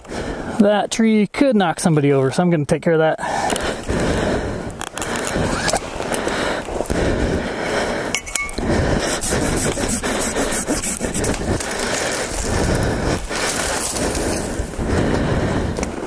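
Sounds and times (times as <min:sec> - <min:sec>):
hand saw rasping through wood: 0:09.0 - 0:11.9.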